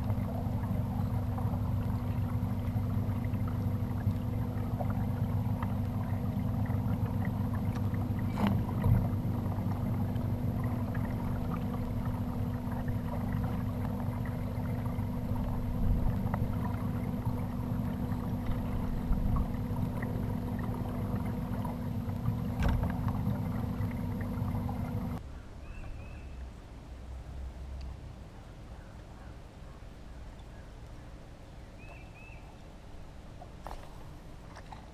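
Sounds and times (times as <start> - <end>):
low rumble of water: 0.0 - 34.9
light knocks on kayak: 22.5 - 23.2.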